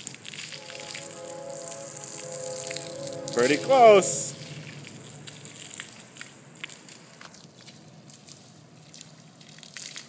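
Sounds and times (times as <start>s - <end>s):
hose water spattering on concrete: 7.2s - 10.0s.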